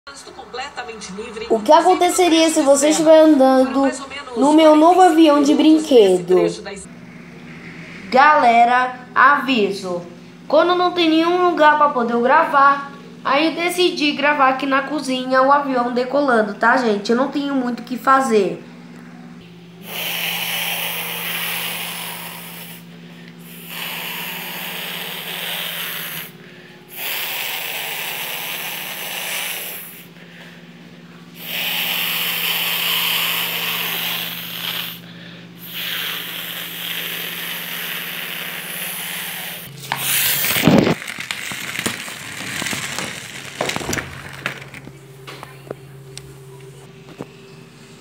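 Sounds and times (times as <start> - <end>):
low steady hum: 0.1 - 48.0
whooshing hiss imitating jet engine: 19.8 - 30.1, 31.4 - 35.0, 35.6 - 41.0.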